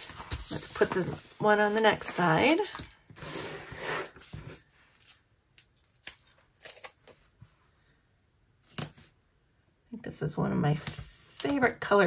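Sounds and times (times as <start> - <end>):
page turning: 0.0 - 7.3.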